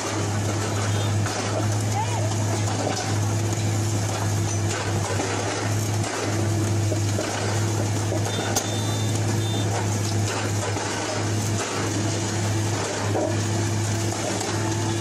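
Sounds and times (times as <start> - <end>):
machine engine droning: 0.0 - 15.0
mechanical noise: 0.0 - 15.0
short high beep: 8.2 - 9.7.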